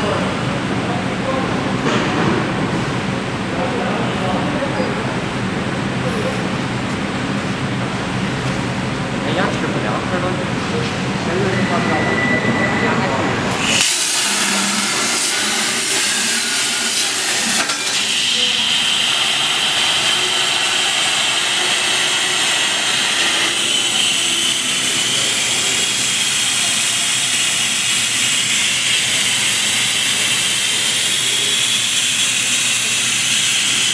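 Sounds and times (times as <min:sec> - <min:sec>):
high-pitched whine: 0:09.5 - 0:33.9
plasma torch hissing: 0:13.5 - 0:27.8.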